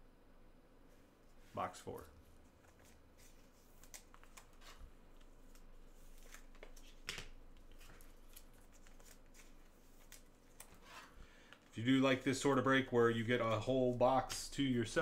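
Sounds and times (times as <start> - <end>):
trading cards rustling and clicking: 2.4 - 11.7.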